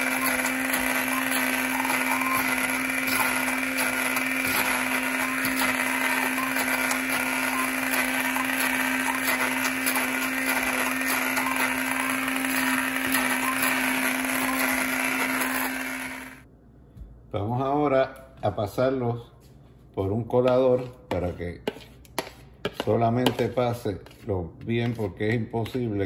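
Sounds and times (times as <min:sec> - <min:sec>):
immersion blender running: 0:00.0 - 0:16.5.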